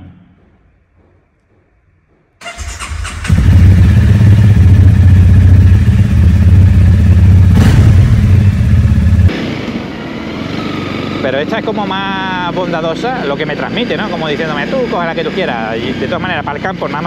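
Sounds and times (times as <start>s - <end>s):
motorcycle engine cranking: 2.4s - 4.4s
motorcycle engine idling: 2.4s - 9.3s.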